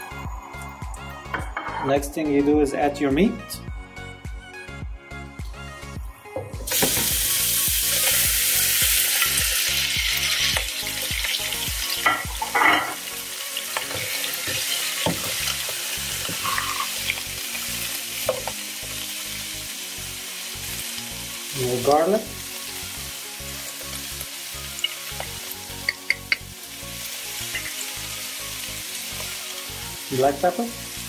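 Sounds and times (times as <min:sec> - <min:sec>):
meat sizzling in hot fat: 0:06.7 - 0:31.0.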